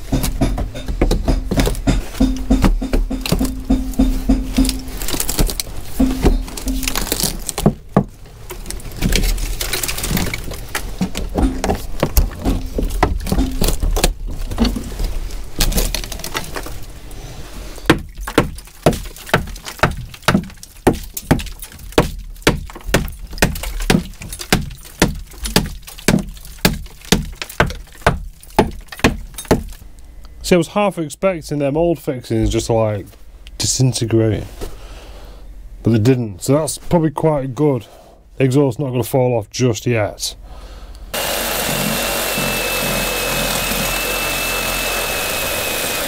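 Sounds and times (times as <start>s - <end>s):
hammer striking bolts: 0.0s - 5.0s, 6.0s - 7.1s, 11.4s - 13.8s
metal clattering and scraping: 0.0s - 7.6s.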